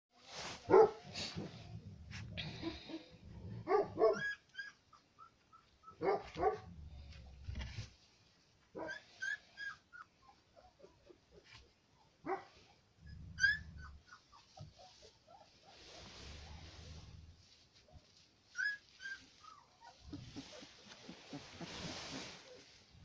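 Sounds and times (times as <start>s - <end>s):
puppy whining and yelping: 3.8s - 6.4s, 8.8s - 16.2s, 18.1s - 22.8s.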